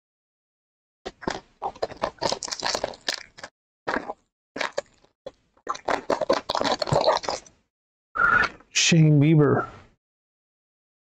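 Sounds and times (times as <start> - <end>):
foil wrapper crinkling: 1.7 - 3.5, 6.1 - 7.5.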